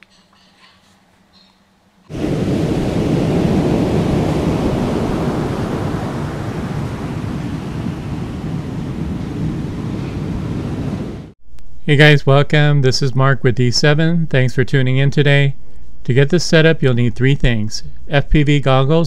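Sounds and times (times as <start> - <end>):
ocean surf rushing: 2.1 - 11.4.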